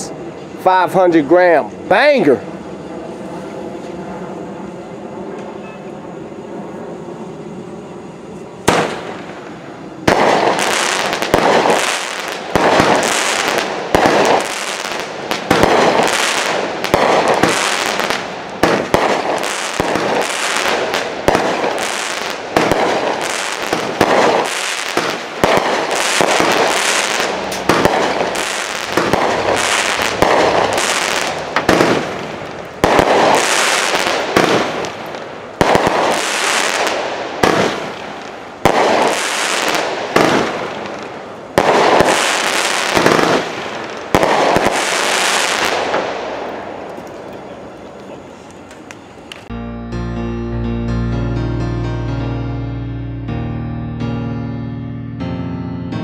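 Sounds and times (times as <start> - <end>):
firework shell reports: 0.0 - 2.8
firework crackling: 0.0 - 49.5.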